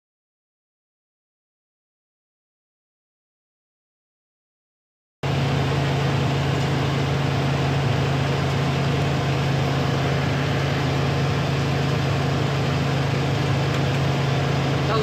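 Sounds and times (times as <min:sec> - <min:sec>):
tractor and blower droning: 0:05.2 - 0:15.0.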